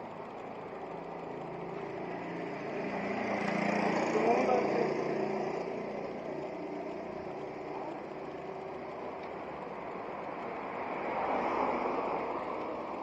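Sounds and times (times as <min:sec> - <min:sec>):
road and traffic noise: 0:00.0 - 0:13.0
motorcycle engine moving away: 0:01.0 - 0:09.4.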